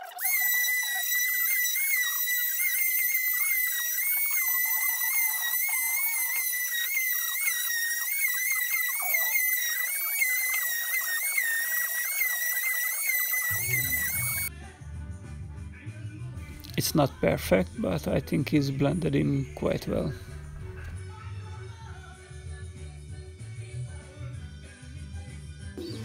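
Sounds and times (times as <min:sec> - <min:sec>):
electric sander whine: 0:05.1 - 0:14.5.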